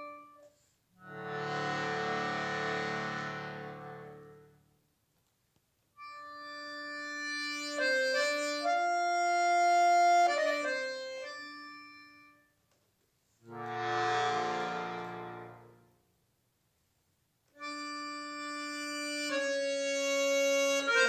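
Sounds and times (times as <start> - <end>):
button accordion chords: 0.0 - 4.6, 6.0 - 12.4, 13.5 - 15.9, 17.6 - 21.0.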